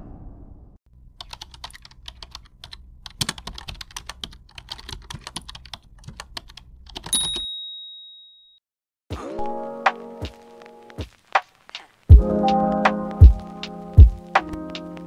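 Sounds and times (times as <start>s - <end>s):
typing key clicks: 1.2s - 7.4s
high bell ding: 7.1s - 8.6s.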